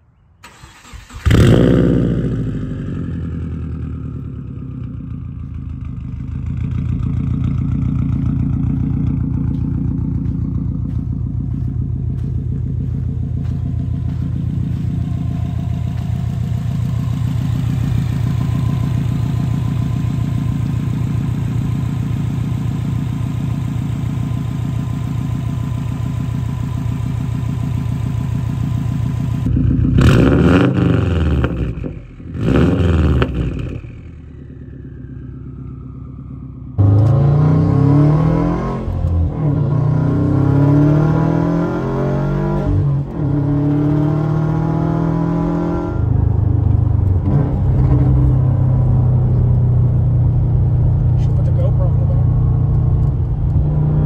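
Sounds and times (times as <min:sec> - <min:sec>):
car engine idling and revving: 0:00.4 - 0:54.0
car accelerating through gear changes: 0:36.8 - 0:51.4.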